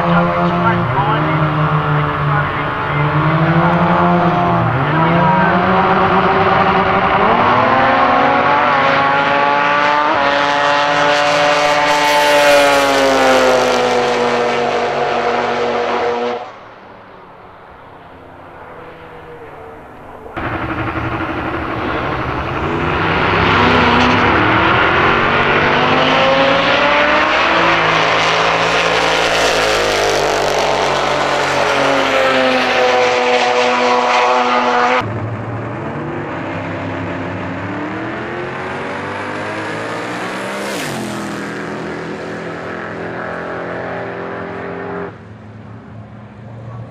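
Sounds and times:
drag racing cars at full throttle: 0:00.0 - 0:46.9
low engine rumble: 0:16.8 - 0:25.8.

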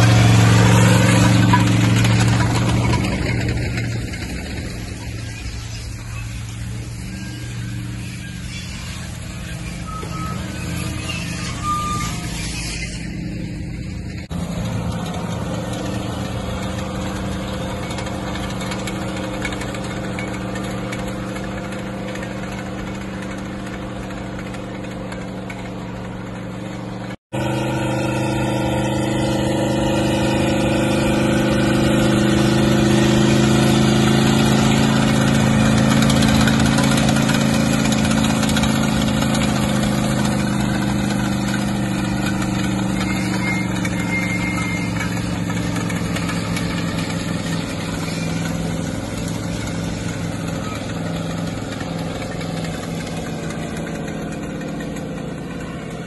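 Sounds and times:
tractor engine running: 0:00.0 - 0:56.0.

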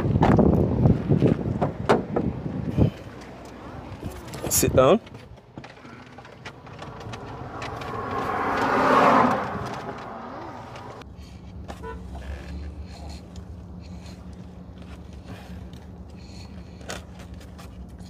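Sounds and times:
steady low rumble: 0:00.0 - 0:11.7
vehicle passing: 0:05.6 - 0:18.0.

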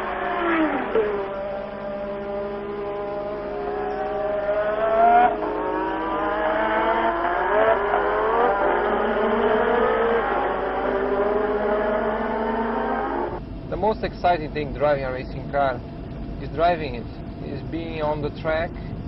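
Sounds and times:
race car engines accelerating: 0:00.0 - 0:15.6.

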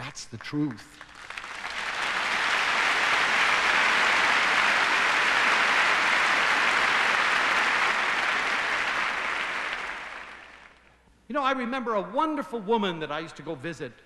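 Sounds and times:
audience applauding: 0:00.0 - 0:10.9.

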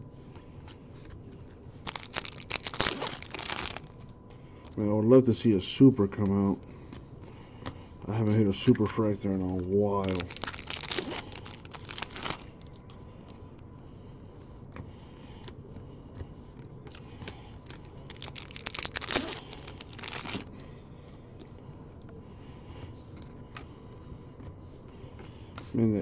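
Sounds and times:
cards rustling and sliding: 0:00.4 - 0:04.1, 0:08.2 - 0:13.4, 0:16.1 - 0:20.5
wrapper crinkling and tearing: 0:01.8 - 0:04.0, 0:10.0 - 0:12.7, 0:17.6 - 0:20.5.

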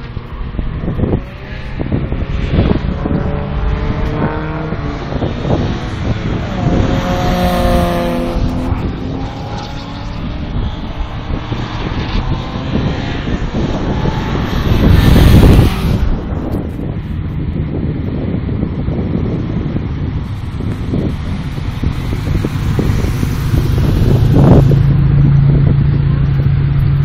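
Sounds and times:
race cars driving past: 0:00.0 - 0:17.0, 0:19.0 - 0:27.0
loud low rush: 0:00.0 - 0:27.0.

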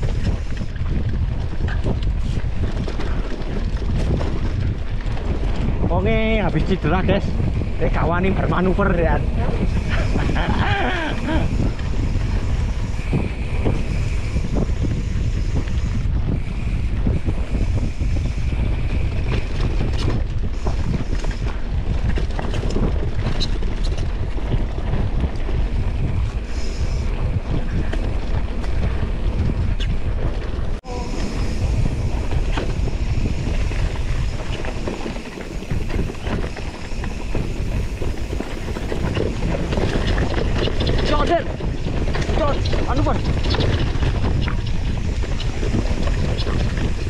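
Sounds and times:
bike clicks and rattles: 0:00.0 - 0:47.0
wind rushing over microphone: 0:00.0 - 0:47.0.

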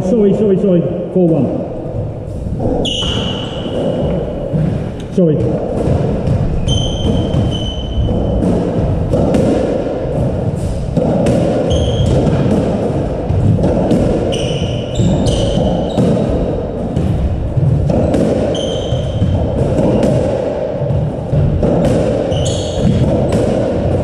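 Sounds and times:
shoes squeaking on wooden floor: 0:01.8 - 0:08.6, 0:11.4 - 0:12.7, 0:13.4 - 0:16.8, 0:18.3 - 0:20.0, 0:22.2 - 0:24.0
squash ball cracking off rackets: 0:02.5 - 0:24.0.

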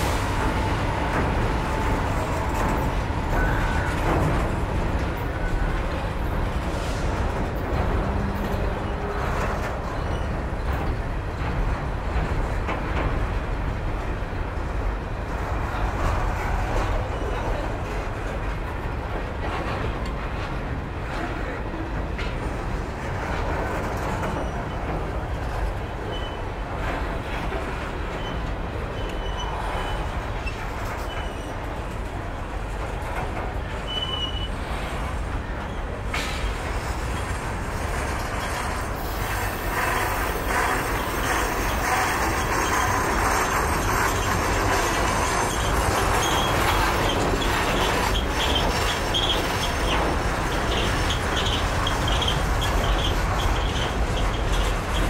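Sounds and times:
freight train wheels rumbling: 0:00.0 - 0:55.0
high wheel squeals: 0:00.1 - 0:05.8, 0:28.2 - 0:31.6, 0:33.8 - 0:34.9, 0:38.4 - 0:55.0.

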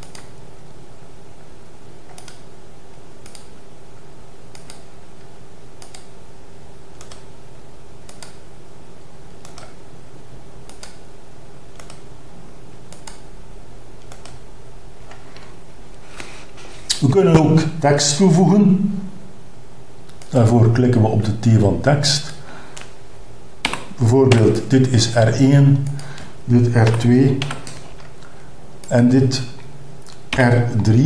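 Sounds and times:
computer mouse clicks: 0:00.0 - 0:00.3, 0:02.1 - 0:02.5, 0:03.2 - 0:03.5, 0:04.5 - 0:04.9, 0:05.8 - 0:06.2, 0:07.0 - 0:07.3, 0:08.0 - 0:08.4, 0:09.4 - 0:09.8, 0:10.6 - 0:11.0, 0:11.7 - 0:12.1, 0:12.9 - 0:13.3, 0:14.0 - 0:14.4, 0:20.1 - 0:20.4, 0:25.8 - 0:29.0
electrical hum: 0:00.0 - 0:31.0.

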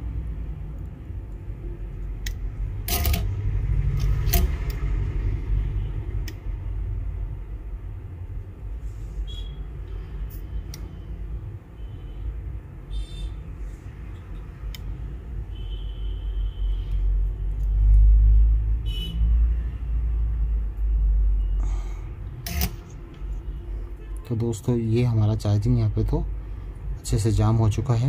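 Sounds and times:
metal tools clicking: 0:02.9 - 0:03.3.

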